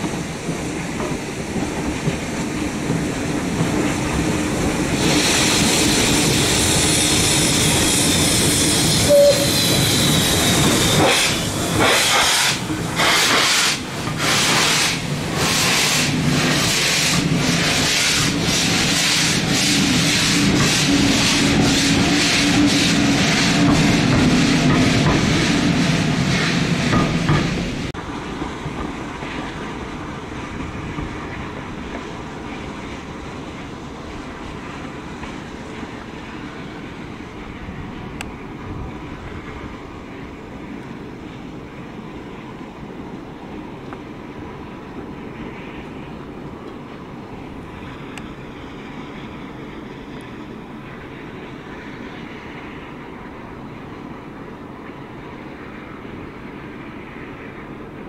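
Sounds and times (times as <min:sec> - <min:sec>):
steam locomotive exhaust beats: 0:00.0 - 0:36.7
train rumbling: 0:00.0 - 0:58.0
steam hissing: 0:04.2 - 0:27.9.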